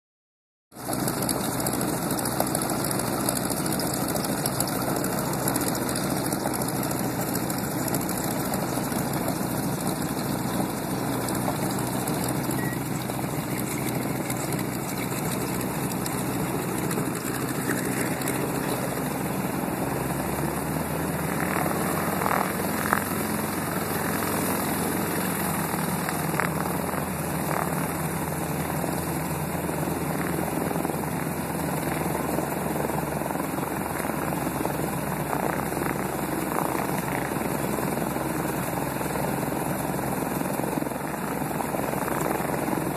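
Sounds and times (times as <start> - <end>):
propeller aircraft engine drone: 0.7 - 42.9.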